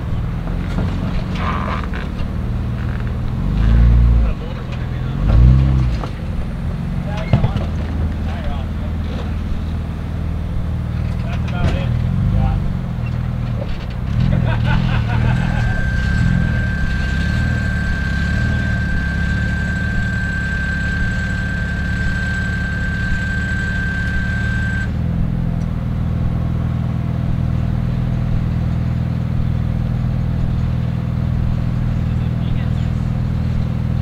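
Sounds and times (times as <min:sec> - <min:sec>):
engine running near idle: 0:00.0 - 0:34.0
thin high whine: 0:13.7 - 0:25.4.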